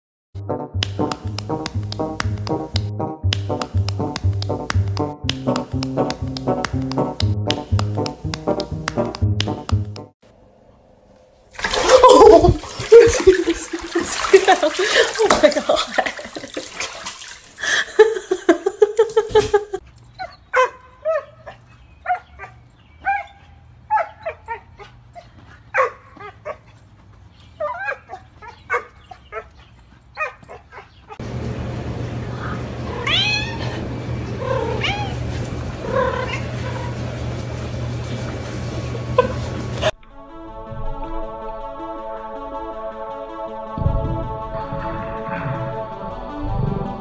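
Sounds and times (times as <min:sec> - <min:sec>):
steady low hum: 0:31.2 - 0:46.6
cats meowing and yowling: 0:32.9 - 0:33.8, 0:34.4 - 0:35.2.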